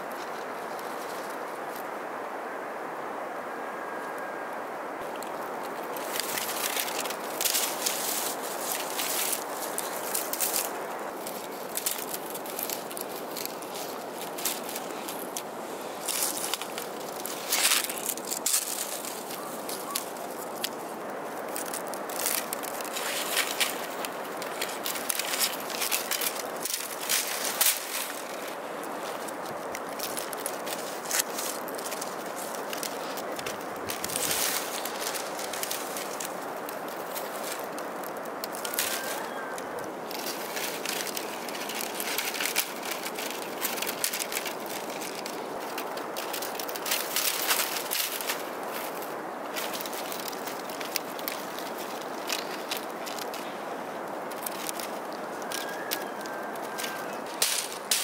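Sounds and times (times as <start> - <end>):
steady background hiss: 0.0 - 58.0
bamboo strips clicking: 6.0 - 58.0.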